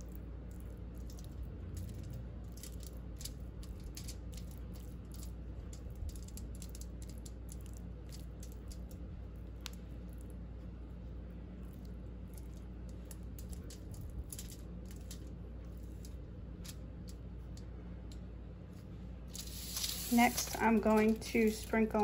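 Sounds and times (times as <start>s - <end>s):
steady low hum: 0.0s - 22.0s
foil clicks and crinkles: 19.4s - 22.0s.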